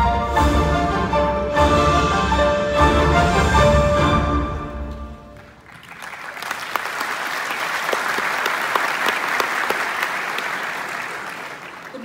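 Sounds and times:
large audience clapping: 5.2s - 12.0s.

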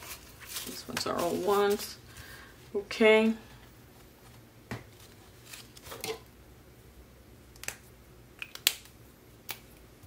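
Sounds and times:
paper money rustling: 0.0s - 2.0s.

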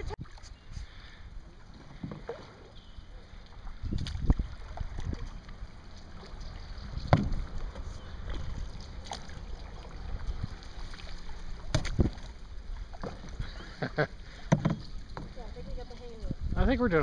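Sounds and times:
paddles splashing water: 0.0s - 17.0s
wind rumble on microphone: 3.7s - 11.1s, 15.3s - 17.0s
paddle knocks: 6.9s - 9.2s, 11.6s - 12.3s, 12.9s - 13.6s, 14.3s - 15.4s.

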